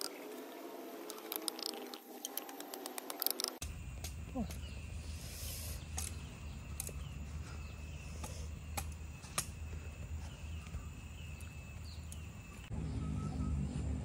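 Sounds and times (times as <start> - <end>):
insect drone: 0.0 - 14.0
faint chirps: 3.6 - 14.0
low droning hum: 3.6 - 14.0.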